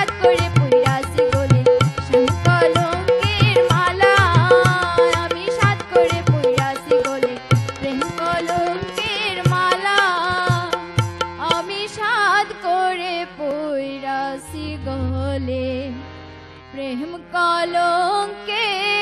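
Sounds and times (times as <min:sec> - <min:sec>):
steady drum beats: 0:00.0 - 0:11.7
wavering folk melody: 0:00.0 - 0:17.5.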